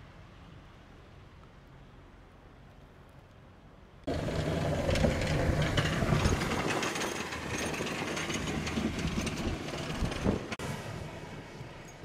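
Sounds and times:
steel blade scraping road: 0:04.1 - 0:12.0
truck engine: 0:04.1 - 0:12.0.

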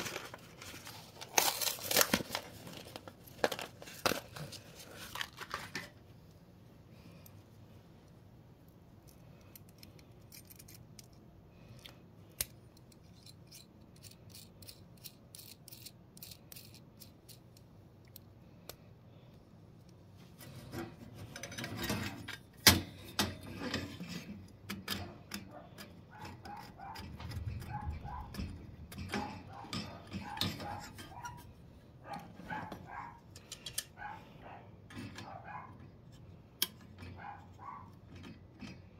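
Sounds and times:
small metal clicks and rattles: 0:09.0 - 0:18.8, 0:21.2 - 0:31.5, 0:32.1 - 0:34.0
knocks and rubbing on metal bracket: 0:26.2 - 0:31.4.

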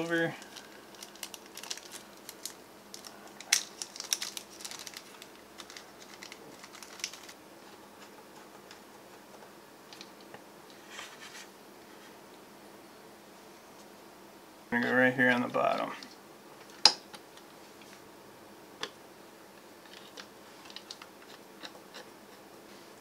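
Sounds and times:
plastic bag crinkling: 0:00.2 - 0:07.8
handling rustle: 0:00.3 - 0:12.1.

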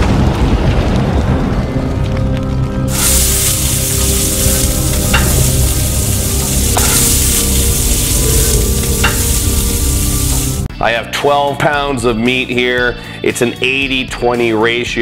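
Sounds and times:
low music tones: 0:00.7 - 0:14.3
food sizzling in hot fat: 0:02.9 - 0:10.7.

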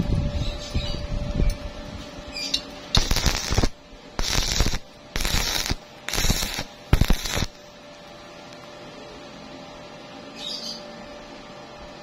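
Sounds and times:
welding arc crackling: 0:02.5 - 0:07.7.

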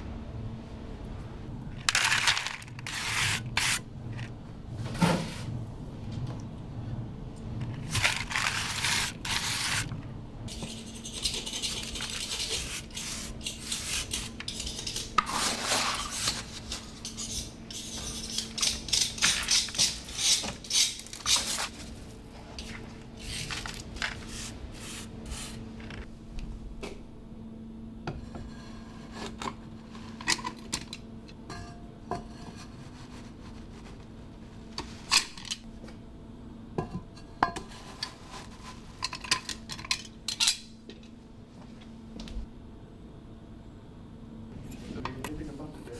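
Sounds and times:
faint steady hum: 0:00.0 - 0:45.9
trowel scraping gritty mortar: 0:07.8 - 0:09.9.

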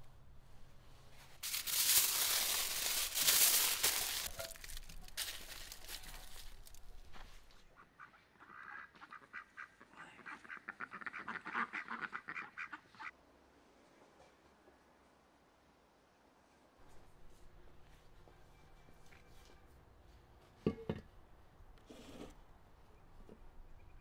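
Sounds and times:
loud rustling crinkling: 0:00.8 - 0:07.6
ducks quacking: 0:07.7 - 0:13.1.

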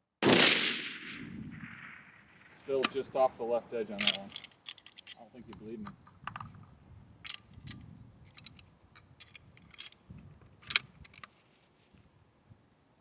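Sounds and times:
rifle bolt metallic clicks: 0:03.9 - 0:06.6, 0:07.2 - 0:11.3.

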